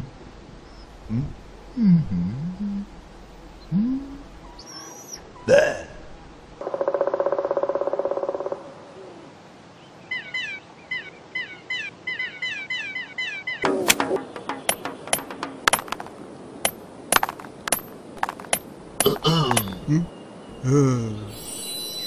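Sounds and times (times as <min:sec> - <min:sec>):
hammer and chisel on stone: 0:14.4 - 0:19.9
falling bird-like chirps: 0:18.3 - 0:22.0.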